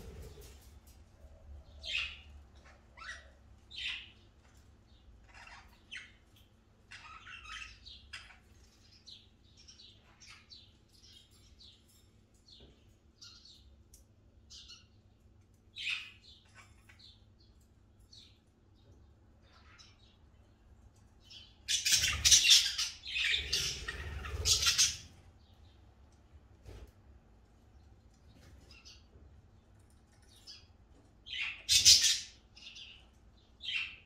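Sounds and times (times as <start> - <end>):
budgerigars chirping: 5.2 - 6.2, 6.9 - 8.4, 21.7 - 25.1, 31.3 - 33.0.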